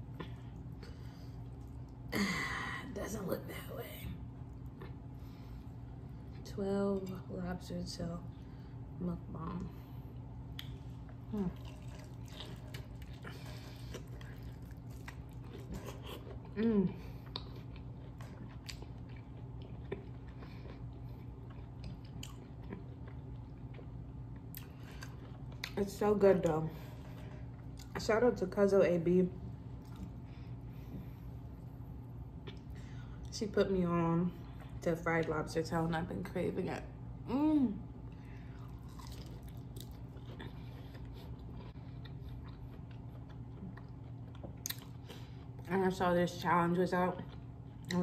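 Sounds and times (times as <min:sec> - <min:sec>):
low steady hum: 0:00.0 - 0:48.0
wet chewing sounds: 0:04.5 - 0:05.4, 0:10.5 - 0:28.0, 0:29.8 - 0:31.2, 0:38.2 - 0:45.7.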